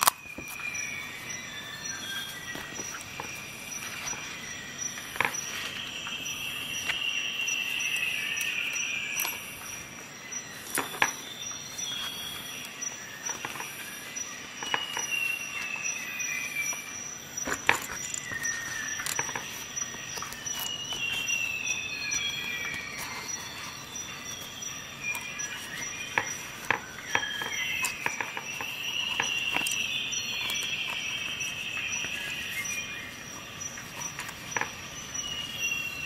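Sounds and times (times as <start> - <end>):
metal tools clicking in a pouch: 17.4 - 32.9.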